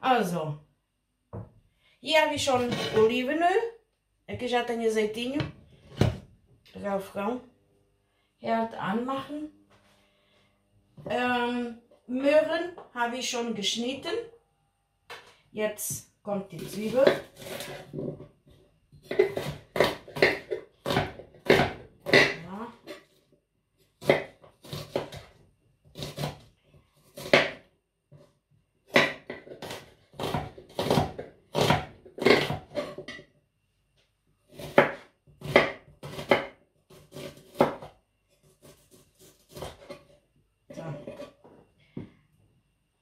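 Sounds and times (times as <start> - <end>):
knife chopping on wooden board: 19.0 - 23.0, 24.0 - 25.3, 27.2 - 27.6, 28.9 - 33.2, 34.5 - 37.9.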